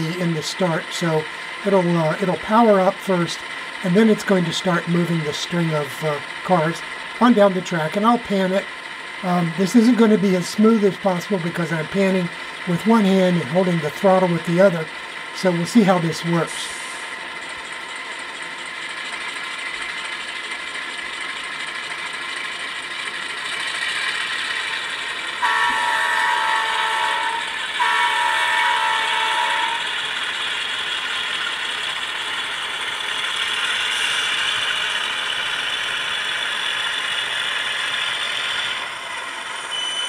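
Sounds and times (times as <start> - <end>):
model locomotive diesel engine sound: 0.0 - 40.0
air horn blasts: 25.4 - 30.0.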